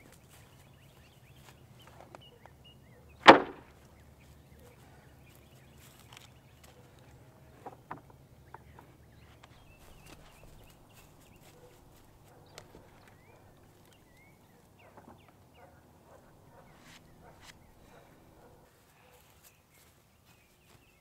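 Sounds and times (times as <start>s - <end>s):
wooden slabs knocking: 3.2s - 3.7s.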